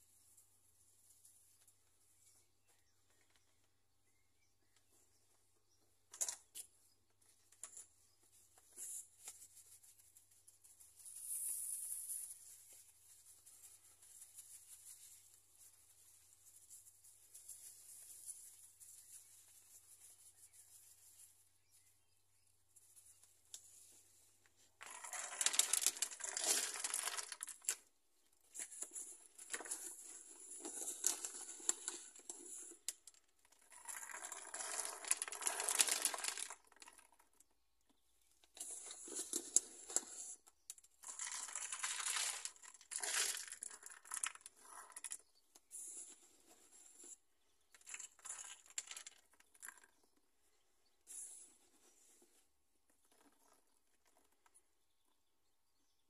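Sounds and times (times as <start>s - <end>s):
packet crinkling: 24.8s - 27.8s, 28.6s - 37.2s, 41.0s - 45.2s, 47.7s - 49.9s.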